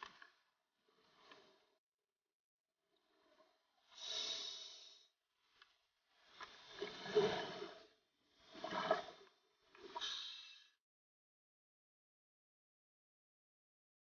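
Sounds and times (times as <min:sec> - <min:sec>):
regulator bubbling hiss underwater: 0:09.9 - 0:10.7.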